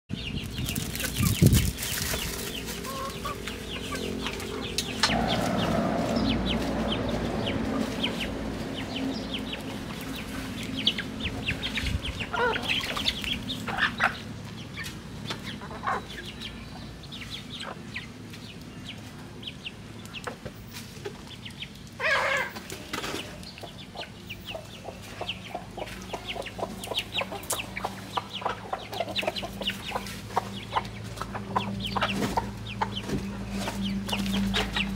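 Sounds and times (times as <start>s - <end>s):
chickens clucking: 0.1s - 34.9s
chicken calling: 0.7s - 14.3s, 22.0s - 22.7s.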